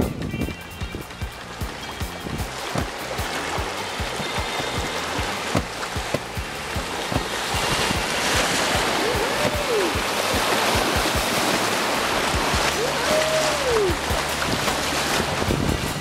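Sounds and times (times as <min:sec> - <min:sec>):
river current rushing: 0:01.0 - 0:16.0
low knocks on canoe: 0:02.3 - 0:09.6.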